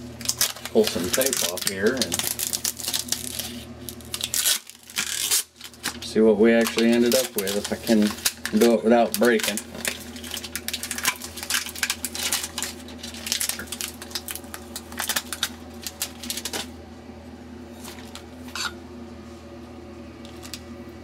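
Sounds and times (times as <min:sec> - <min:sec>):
tape peeling off glass: 0:04.1 - 0:05.8.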